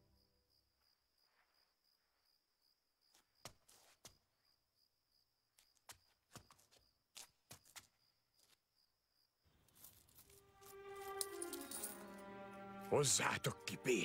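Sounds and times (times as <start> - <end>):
cricket chirping: 0.0 - 10.4.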